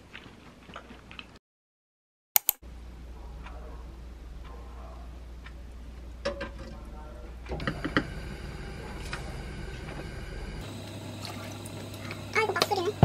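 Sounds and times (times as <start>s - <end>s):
low hum: 7.3s - 13.0s
gas burner hissing: 7.5s - 13.0s.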